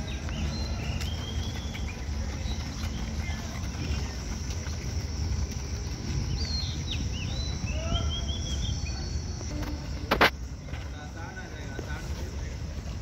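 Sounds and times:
bird chirping: 0.0s - 4.7s, 5.8s - 10.0s.

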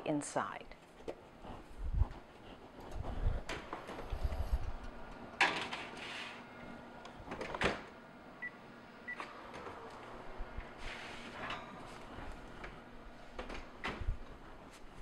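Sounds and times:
oven door shutting: 13.3s - 14.3s.

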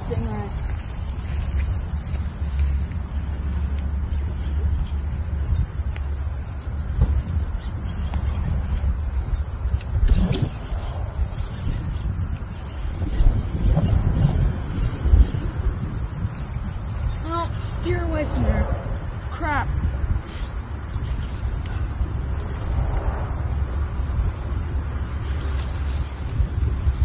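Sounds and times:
insect chorus trilling: 0.0s - 27.0s
low rumble: 12.9s - 20.3s
faint voices: 17.1s - 20.5s.

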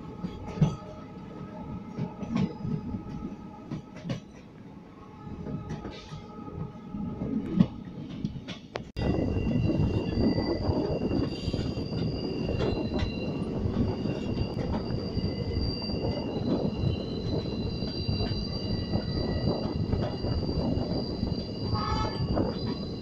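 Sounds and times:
train wheels rumbling on rails: 0.0s - 23.0s
high-pitched wheel squeal: 9.0s - 23.0s.

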